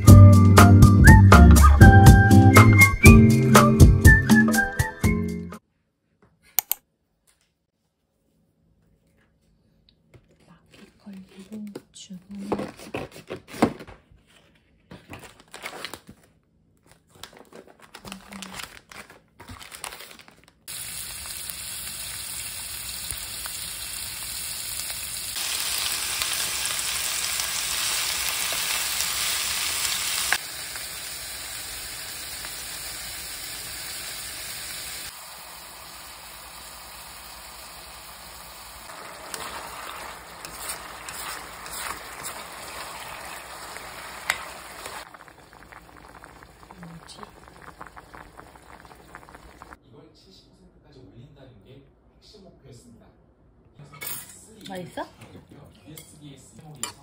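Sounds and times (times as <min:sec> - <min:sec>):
food sizzling in a pan: 0:20.7 - 0:49.8.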